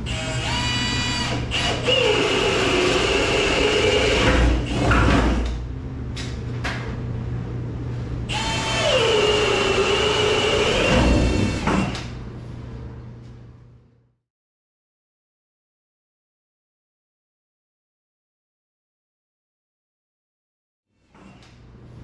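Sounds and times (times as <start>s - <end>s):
drill boring into wood: 0.1s - 5.4s, 8.3s - 12.0s.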